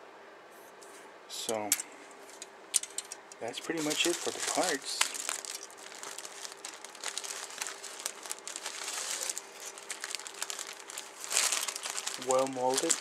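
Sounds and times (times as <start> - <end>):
plastic bag crinkling: 2.9 - 13.0.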